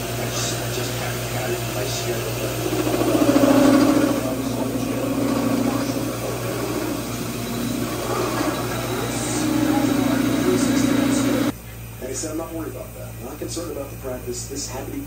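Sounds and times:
drill bit cutting drone: 1.2 - 11.5
drill press motor hum: 2.2 - 11.5.

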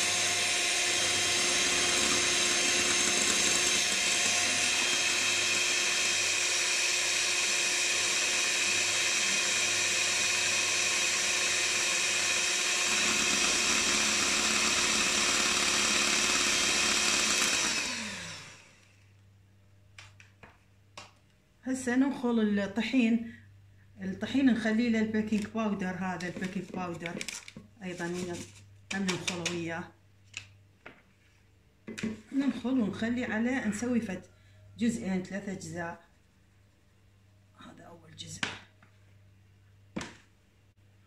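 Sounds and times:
electric hand mixer running: 0.0 - 18.9.

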